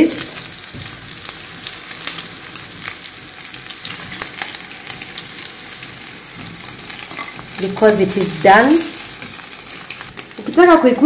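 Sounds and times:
meat sizzling in a frying pan: 0.0s - 11.0s
spatula scraping a pan: 6.3s - 7.6s.

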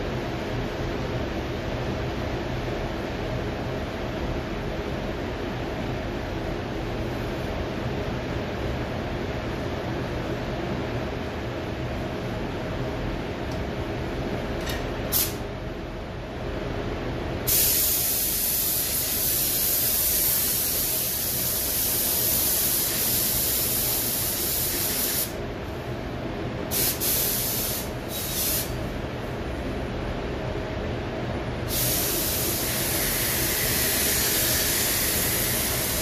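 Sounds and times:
ventilation hum: 0.0s - 36.0s
spray gun hissing: 17.5s - 25.4s, 26.7s - 28.8s, 31.7s - 36.0s.

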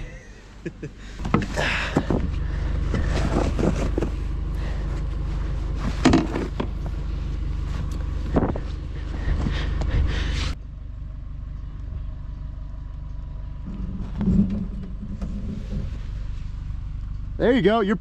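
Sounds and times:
truck engine idling: 0.0s - 18.0s
plastic board scraping into snow: 2.9s - 4.2s.

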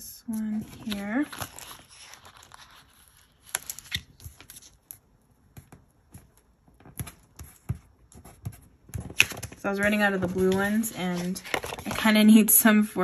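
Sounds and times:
paper rustling: 0.3s - 5.0s, 5.6s - 12.3s.

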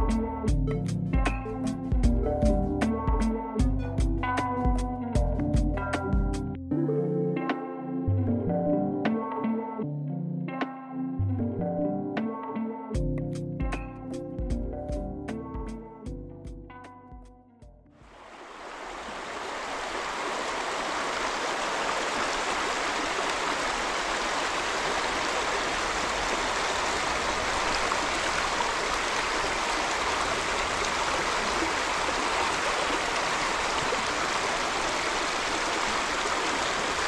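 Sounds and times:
creek running over stones: 18.0s - 37.0s.

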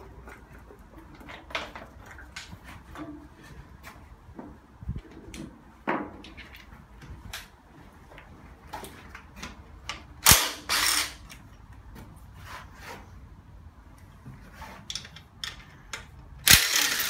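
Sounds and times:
tools and engine parts clattering: 5.8s - 6.9s, 14.4s - 17.0s.

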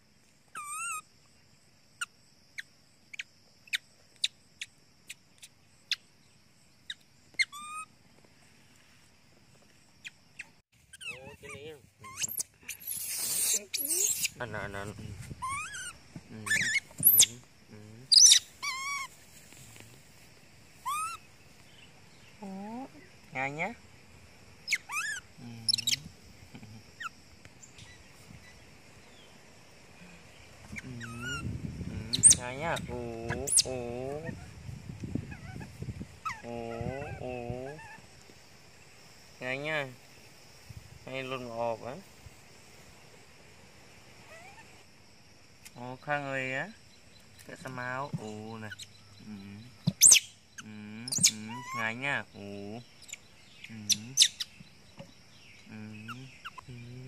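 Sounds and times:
baby monkey sharp squeaks: 0.5s - 1.1s, 6.9s - 7.9s, 10.0s - 14.4s, 15.4s - 17.4s, 18.1s - 19.2s, 20.8s - 21.2s, 24.6s - 26.1s, 30.7s - 31.5s, 32.1s - 33.7s, 35.3s - 38.0s, 49.9s - 51.9s, 53.0s - 53.2s, 53.9s - 54.5s, 56.1s - 56.7s
baby monkey wavering cry: 0.5s - 1.1s, 6.9s - 7.9s, 10.0s - 14.4s, 15.4s - 17.4s, 18.1s - 19.2s, 20.8s - 21.3s, 24.6s - 26.1s, 30.7s - 34.6s, 35.2s - 38.1s, 44.2s - 44.8s, 49.9s - 52.0s, 53.9s - 54.5s, 56.0s - 56.7s.

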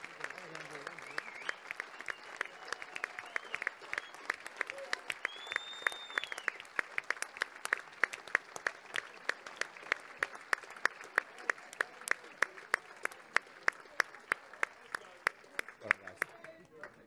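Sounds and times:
audience clapping in rhythm: 0.0s - 17.0s.

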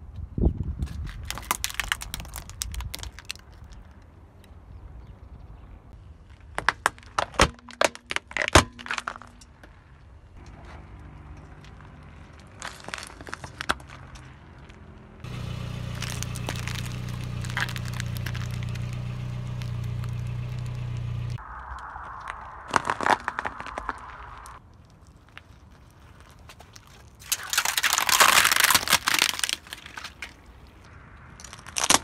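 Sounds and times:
plastic toy cracking: 0.8s - 3.8s, 27.2s - 30.4s
car engine hum: 13.8s - 21.6s.

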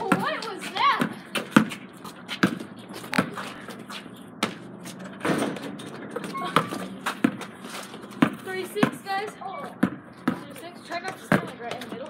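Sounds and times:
basketball bouncing on hard court: 0.0s - 3.5s, 6.5s - 7.5s, 8.1s - 12.0s.

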